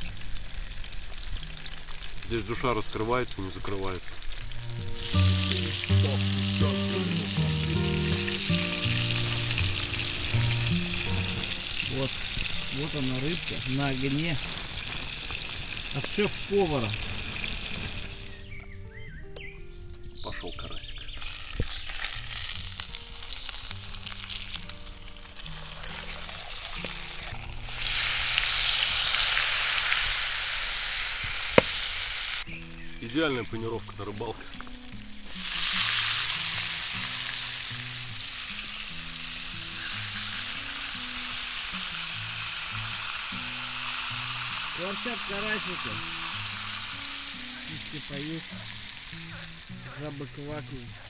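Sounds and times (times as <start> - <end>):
fish frying in oil: 0.0 - 18.3, 21.2 - 32.5, 34.1 - 49.2
background music of held notes: 4.5 - 15.1, 17.8 - 21.4.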